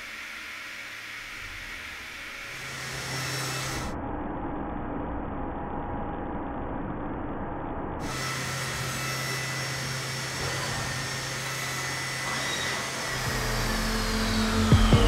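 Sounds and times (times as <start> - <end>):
milling cutter machining metal: 0.0 - 3.9, 8.0 - 15.0.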